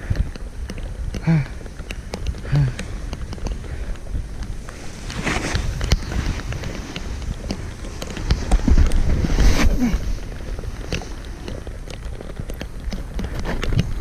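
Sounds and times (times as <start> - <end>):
sharp ticks: 0.0 - 4.8
wind rumbling on microphone: 0.0 - 14.0
snowboard scraping over snow: 3.1 - 14.0.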